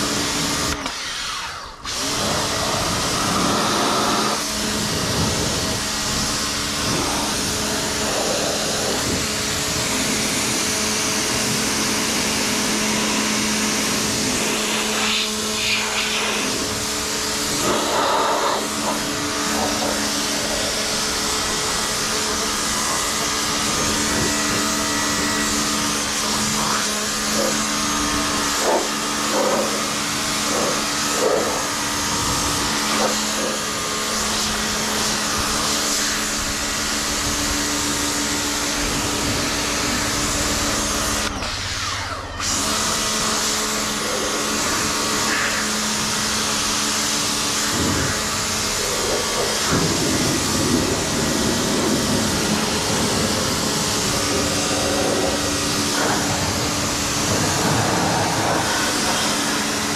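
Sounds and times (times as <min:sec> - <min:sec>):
pressure washer motor humming: 0:00.0 - 0:59.9
water jet hissing on car: 0:02.2 - 0:10.6, 0:13.8 - 0:22.6, 0:23.3 - 0:27.8, 0:28.4 - 0:36.4, 0:43.4 - 0:59.9.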